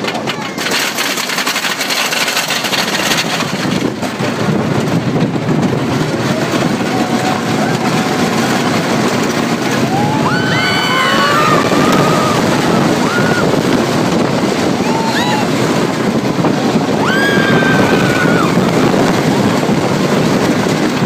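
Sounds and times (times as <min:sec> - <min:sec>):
roller coaster rumbling on track: 0:00.0 - 0:21.0
riders screaming: 0:06.2 - 0:13.9, 0:14.6 - 0:15.7, 0:16.9 - 0:18.9.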